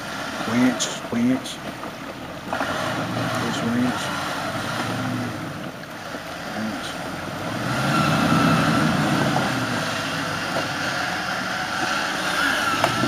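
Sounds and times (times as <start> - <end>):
car engine rumble: 0.0 - 13.0
winch whining: 0.0 - 13.0.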